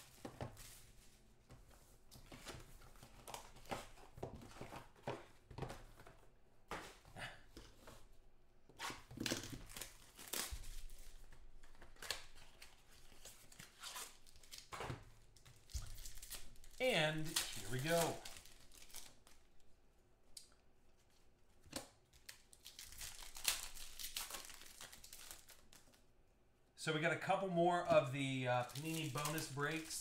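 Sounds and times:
wrappers being torn and crinkled: 9.2 - 14.8, 15.5 - 19.5, 22.0 - 26.0, 28.6 - 30.0.

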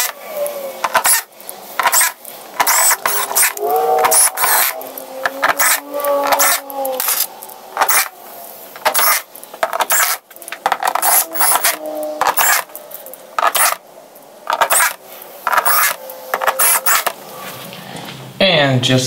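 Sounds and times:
drill driving screws into plastic: 0.8 - 4.8, 5.4 - 8.1, 8.8 - 12.7, 13.4 - 13.8, 14.5 - 17.2
metallic scraping and clicking: 0.8 - 17.7.

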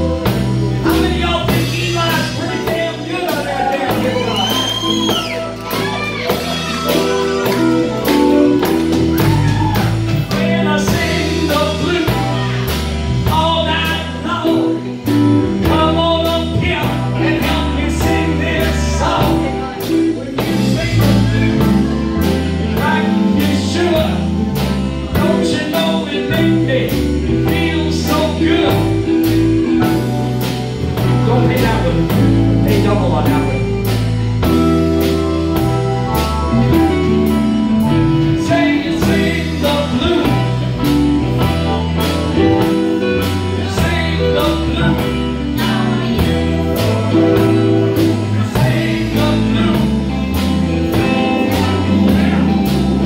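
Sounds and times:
organ through rotating speaker: 0.0 - 9.3
person singing: 0.0 - 35.2, 36.6 - 53.0
drum kit beat: 0.0 - 53.0
electric bass: 0.0 - 53.0
electric guitars: 0.0 - 53.0.

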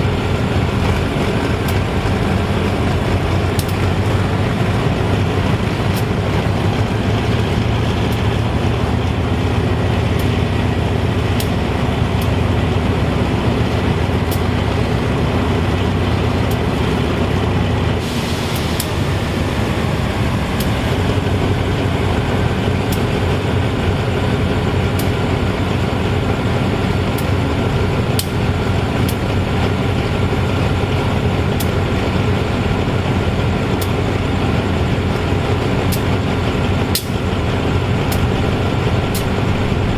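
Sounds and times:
diesel locomotive idling: 0.0 - 39.9
air release hiss: 18.0 - 19.1.

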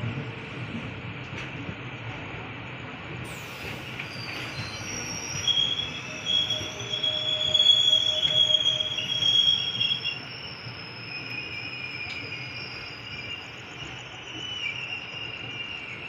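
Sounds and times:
train coaches running noise: 0.0 - 16.0
train wheels squealing on rails: 3.1 - 16.0.

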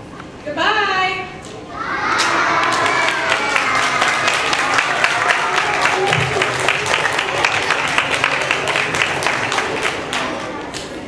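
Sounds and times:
children clapping and cheering: 1.9 - 11.0.

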